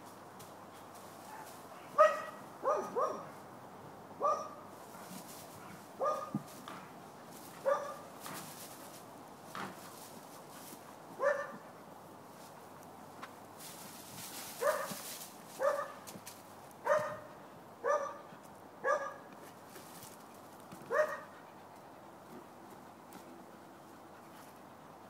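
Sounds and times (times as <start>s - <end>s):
dog barking: 2.0s - 3.4s, 4.2s - 4.6s, 6.0s - 6.4s, 7.6s - 8.1s, 11.2s - 11.6s, 14.6s - 15.0s, 15.6s - 16.0s, 16.8s - 19.3s, 20.9s - 21.3s.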